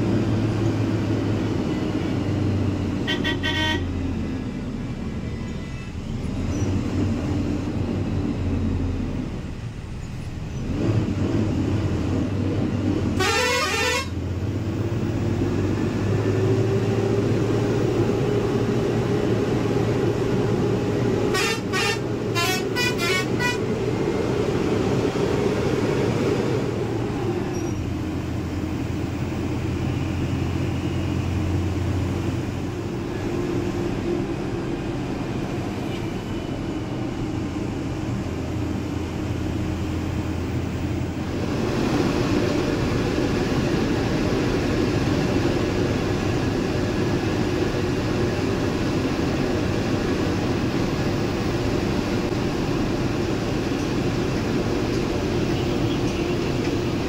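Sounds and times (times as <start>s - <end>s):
diesel coach engine running: 0.0s - 57.0s
short horn toots: 3.1s - 3.9s, 13.2s - 14.2s, 21.3s - 23.7s
horn with rising pitch: 13.2s - 14.2s, 21.3s - 23.7s.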